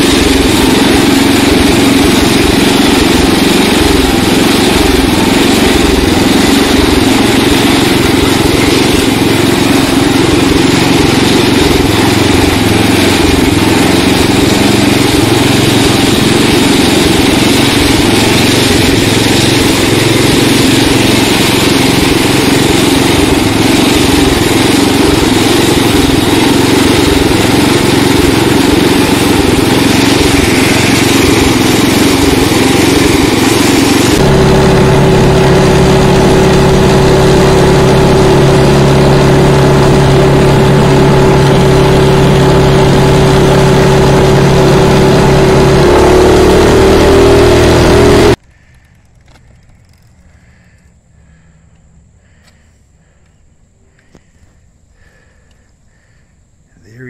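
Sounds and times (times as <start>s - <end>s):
lawn tractor engine running: 0.0s - 57.0s.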